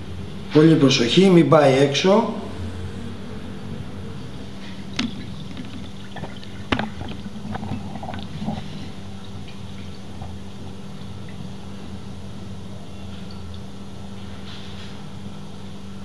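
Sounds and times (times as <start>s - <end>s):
steady low hum: 0.0s - 14.4s
oil pouring: 4.8s - 11.3s.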